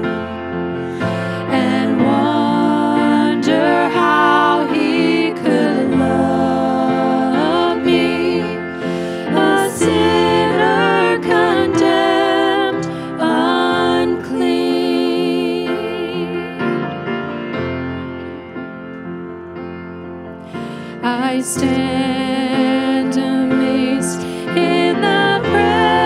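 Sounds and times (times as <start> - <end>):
women singing worship song: 1.0 - 16.8, 21.0 - 26.0.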